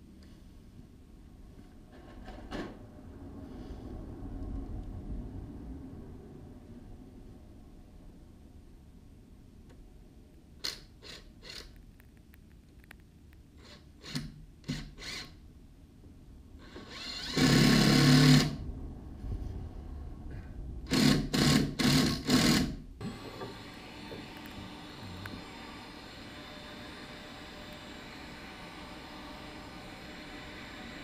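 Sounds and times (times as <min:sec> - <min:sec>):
cordless drill driving screws: 0:10.6 - 0:11.7, 0:13.6 - 0:15.4, 0:16.6 - 0:18.6, 0:20.9 - 0:31.0.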